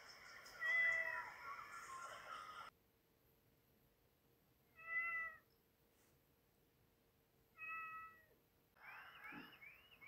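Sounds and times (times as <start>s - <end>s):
cat meowing: 4.7s - 5.5s, 7.6s - 8.3s.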